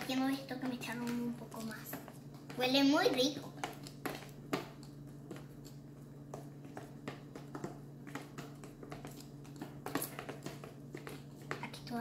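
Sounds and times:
utensil tapping against bowl: 0.0s - 11.8s
steady low hum: 0.0s - 12.0s.

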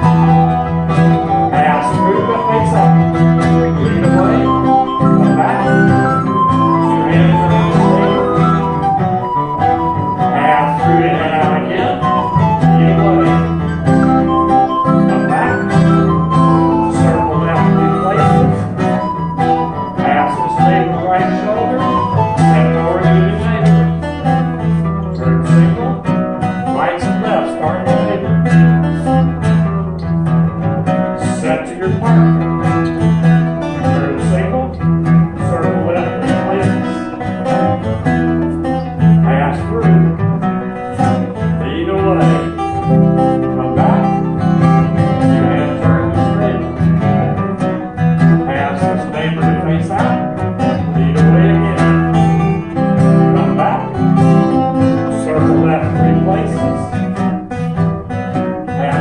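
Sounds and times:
folk band playing dance tune: 0.0s - 59.0s.

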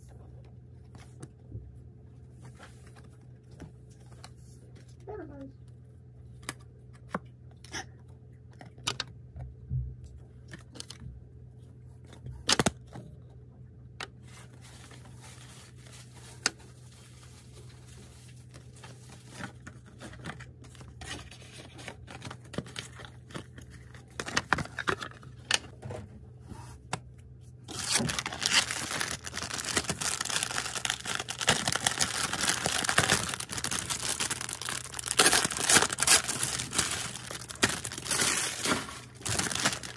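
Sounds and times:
plastic wrapping crinkling: 27.7s - 39.9s.

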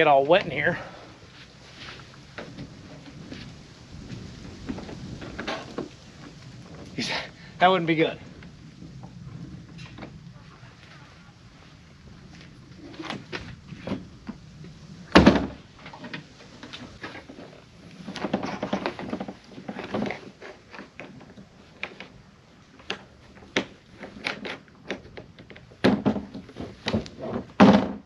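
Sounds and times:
panels scraping and rattling: 12.2s - 28.0s.

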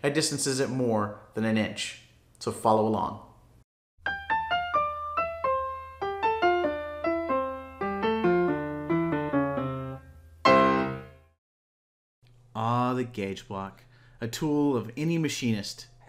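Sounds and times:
loud keyboard chord: 4.0s - 11.3s
keyboard notes stepping downward: 4.1s - 11.1s.

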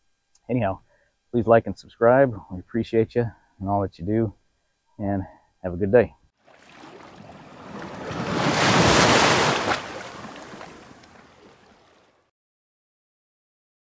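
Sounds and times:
surf washing on beach: 6.5s - 12.2s.

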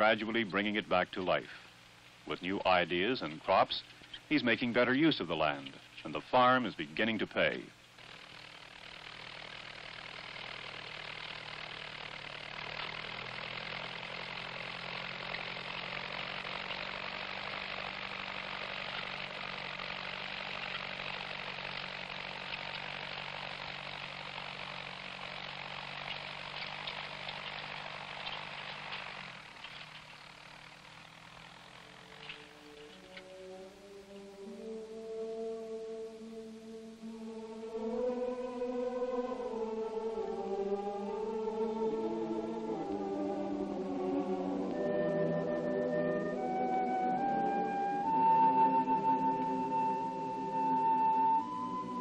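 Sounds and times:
tractor engine running: 0.0s - 52.0s
music: 32.3s - 52.0s.

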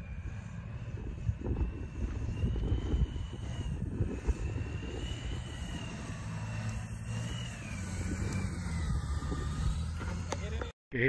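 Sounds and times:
wind on microphone: 0.0s - 10.2s
engine drone with high whine: 0.0s - 10.8s.

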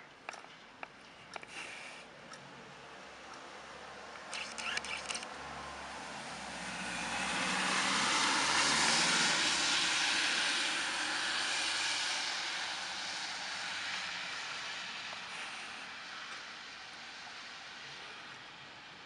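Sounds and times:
car tyres hissing on wet street: 5.4s - 19.0s.

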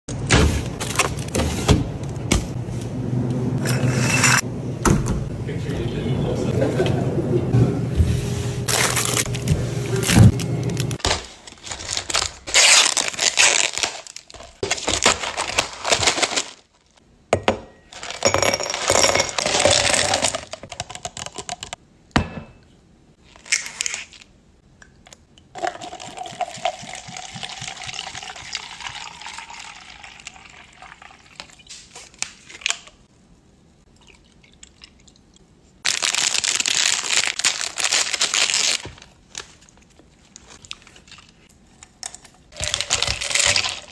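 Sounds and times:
wrapper torn open: 8.7s - 9.4s, 10.0s - 17.0s, 35.8s - 39.8s
plastic packaging crinkling: 8.7s - 17.0s, 35.8s - 41.5s, 42.6s - 43.9s.

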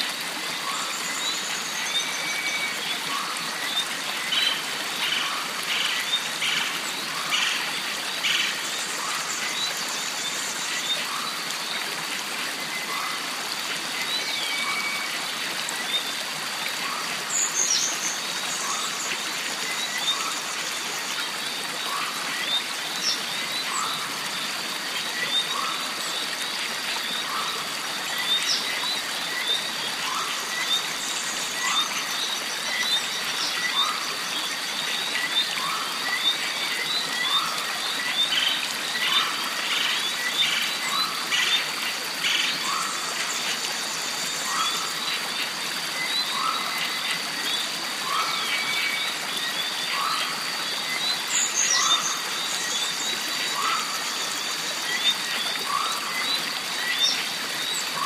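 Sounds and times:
mountain stream running: 0.0s - 58.0s.

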